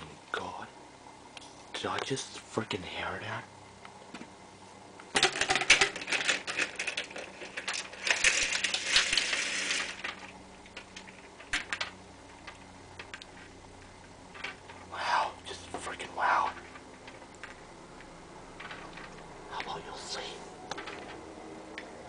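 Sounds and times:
faint low hum: 0.0 - 22.0
handling noise clicking and rustling: 16.5 - 19.3, 20.7 - 21.2.

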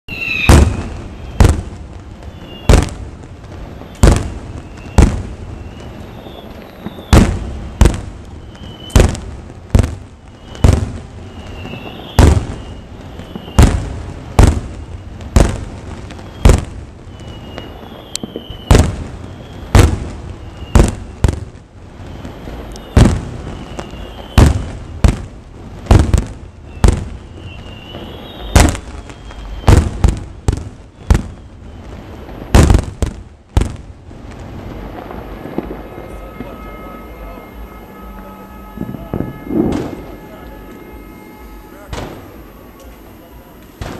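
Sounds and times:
firework shells bursting: 35.0 - 43.9.

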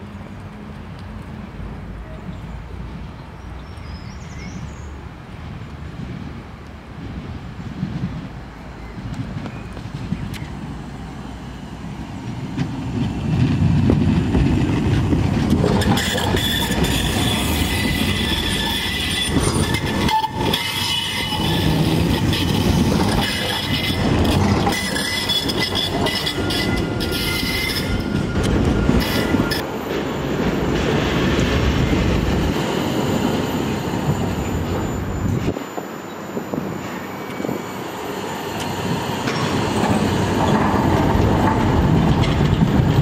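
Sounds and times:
tram wheels rumbling on rails: 0.0 - 43.0
high-pitched wheel squeal: 15.6 - 29.7.

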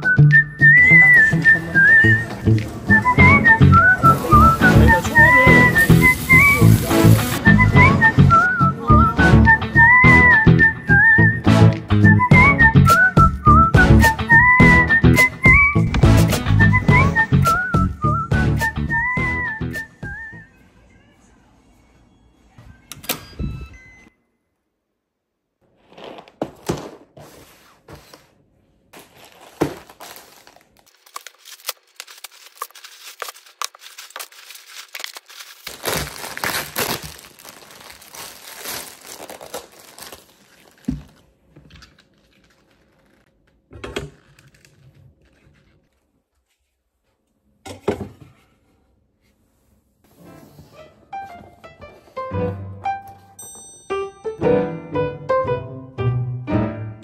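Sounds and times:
plastic packaging rustling and tearing: 29.0 - 43.5, 44.1 - 46.1.

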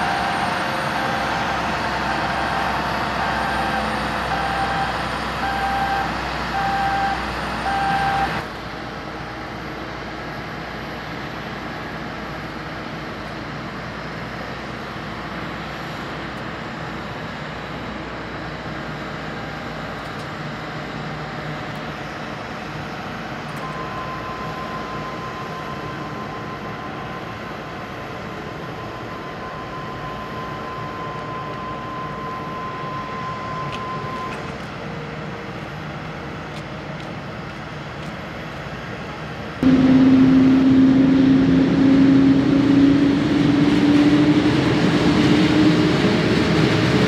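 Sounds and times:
steady aircraft noise: 0.0 - 47.0
steady high whine: 20.8 - 36.6, 39.4 - 47.0.

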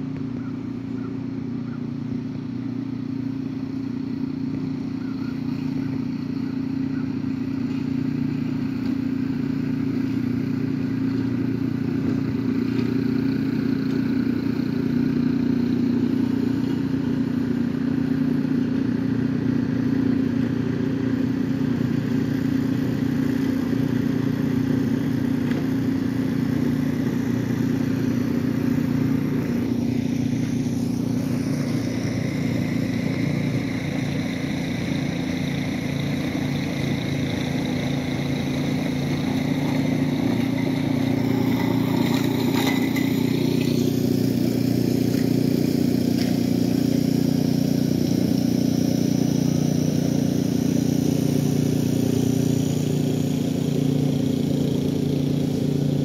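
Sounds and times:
low mechanical drone: 0.0 - 56.0.

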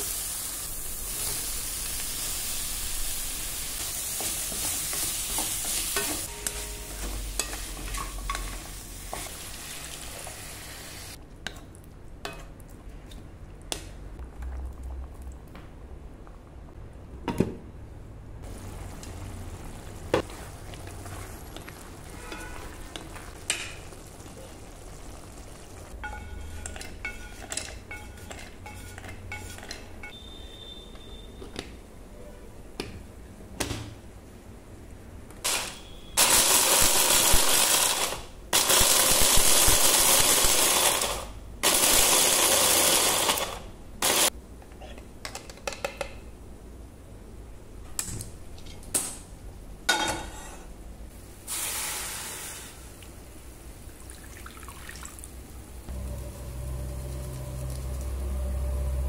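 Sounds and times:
kitchen utensils clinking: 4.2 - 9.4, 26.0 - 30.2.

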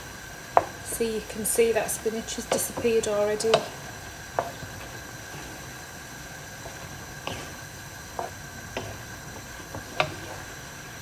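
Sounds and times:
sauce sizzling in a frying pan: 0.0 - 11.0
wooden spoon knocking pan: 2.4 - 5.0.

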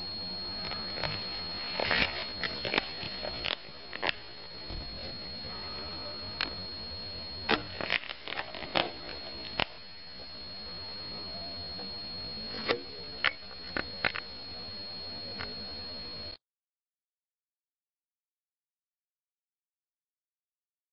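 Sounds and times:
steady hum with high whine: 0.0 - 16.4.

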